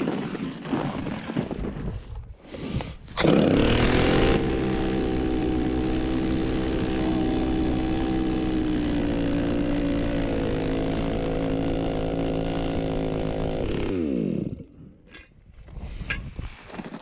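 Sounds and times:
small gas engine running: 0:02.6 - 0:15.0.

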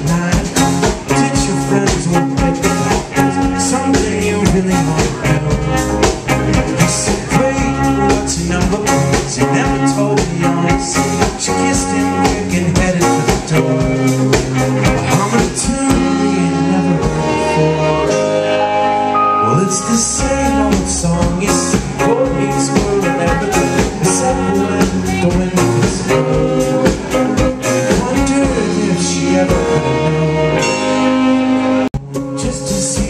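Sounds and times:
steady drum beat: 0:00.0 - 0:18.3, 0:19.5 - 0:30.8
bass: 0:00.0 - 0:33.0
electric guitars: 0:00.0 - 0:33.0
keyboard: 0:00.0 - 0:33.0.

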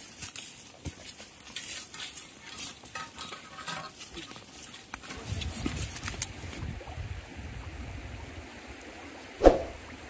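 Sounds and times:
legs brushing through leafy plants: 0:00.0 - 0:03.0.

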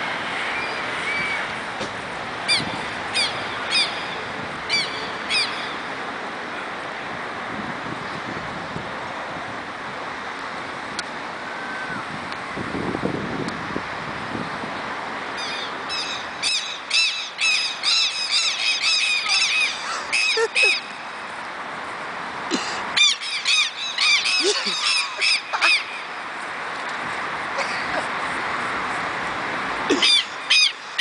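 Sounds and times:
lapwings giving harsh alarm calls: 0:29.9 - 0:31.0.

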